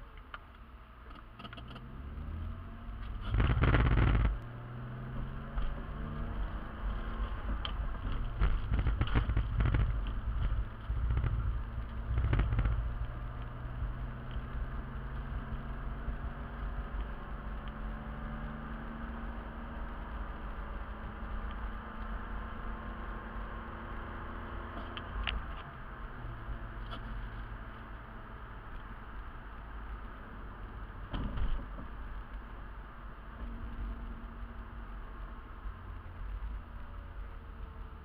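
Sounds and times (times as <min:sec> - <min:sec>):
car engine hum: 0:00.0 - 0:38.0
road noise: 0:00.0 - 0:38.0
loud low rumble: 0:02.8 - 0:16.2.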